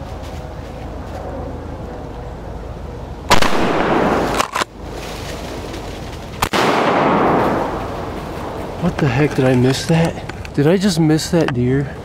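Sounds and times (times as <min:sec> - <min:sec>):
shotgun shots with echo: 0:03.3 - 0:04.4, 0:06.4 - 0:07.9.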